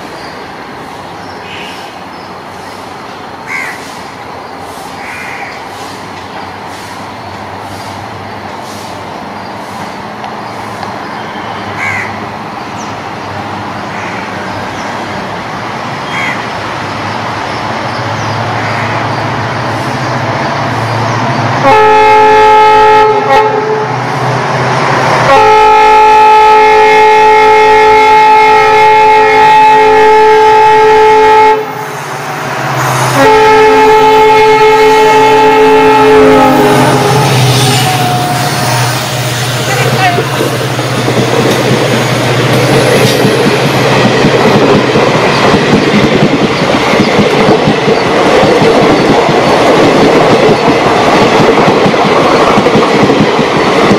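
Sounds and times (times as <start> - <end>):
diesel locomotive engine rumble: 0.0 - 53.9
crow cawing: 3.4 - 3.9, 5.0 - 5.6, 11.8 - 12.2, 13.9 - 14.4, 16.1 - 16.5
train horn chord: 21.6 - 24.0, 25.3 - 31.8, 33.0 - 40.3.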